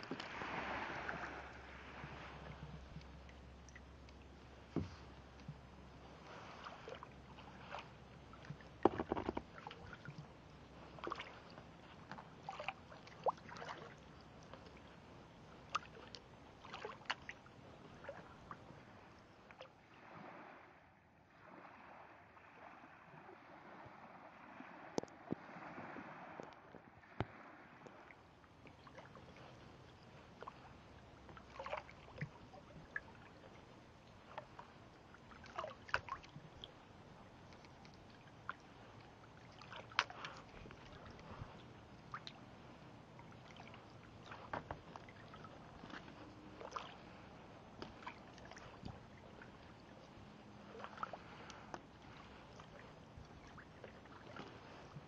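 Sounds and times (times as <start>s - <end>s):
water rushing: 0.0s - 3.8s
paddle splashes: 0.0s - 55.0s
water drips: 3.0s - 4.3s
small knocks: 8.8s - 9.5s.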